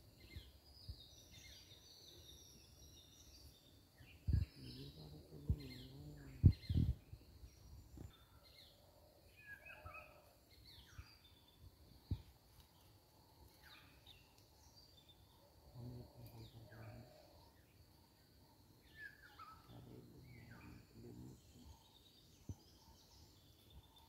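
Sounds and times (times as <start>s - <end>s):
birds chirping: 0.2s - 13.0s, 13.6s - 24.0s
dull low thumps: 5.4s - 7.2s.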